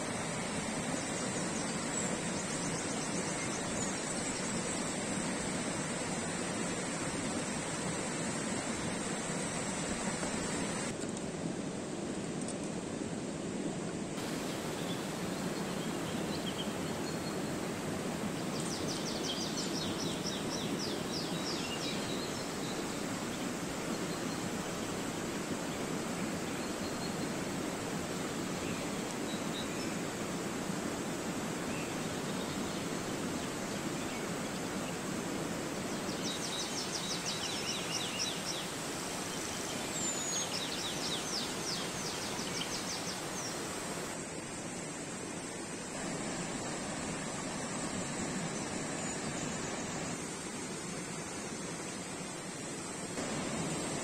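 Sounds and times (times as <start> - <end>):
steady outdoor rushing noise: 27.3 - 54.0.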